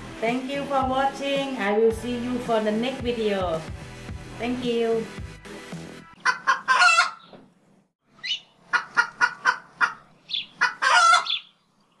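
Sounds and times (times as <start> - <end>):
sharp fowl-like calls: 6.2 - 7.3, 8.2 - 11.5.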